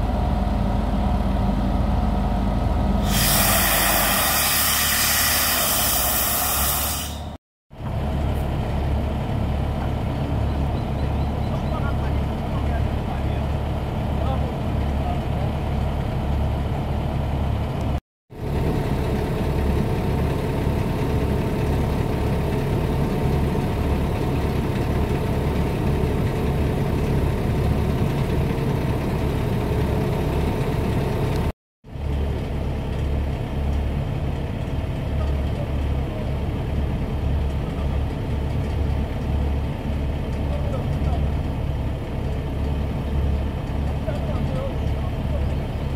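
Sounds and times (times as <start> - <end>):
drill rig engine humming: 18.4 - 31.5.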